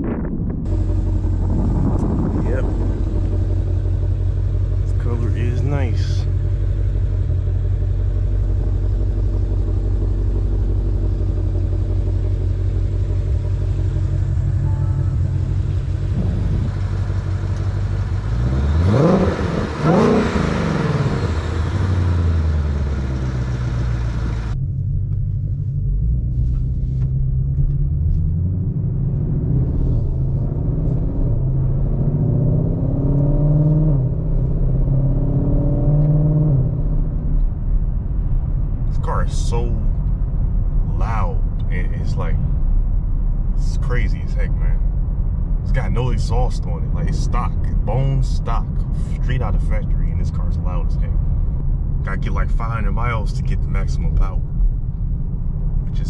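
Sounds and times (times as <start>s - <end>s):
car engine idling and revving: 0.0s - 56.0s
car engine accelerating from cabin: 0.7s - 56.0s.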